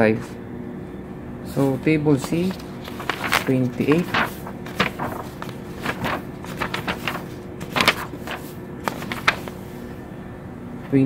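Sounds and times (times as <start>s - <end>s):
low steady hum: 0.0s - 11.0s
paper pages rustling: 1.5s - 9.9s.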